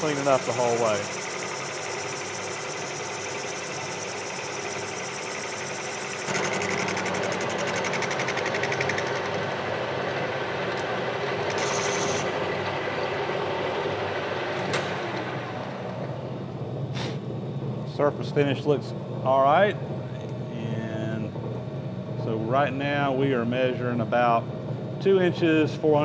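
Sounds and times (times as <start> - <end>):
metal lathe cutting with chatter: 0.0 - 14.0.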